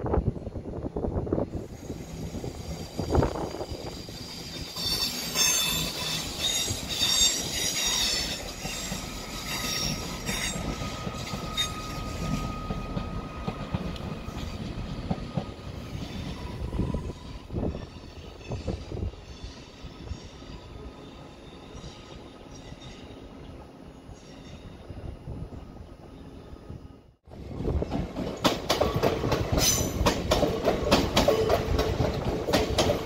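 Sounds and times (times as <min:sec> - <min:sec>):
train wheels and engine rumble: 0:00.0 - 0:33.0
train wheels squealing: 0:01.6 - 0:25.1.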